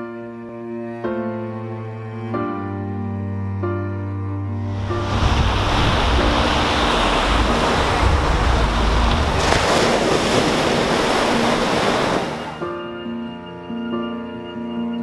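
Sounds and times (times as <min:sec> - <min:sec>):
sea surf breaking on beach: 0:04.7 - 0:12.6.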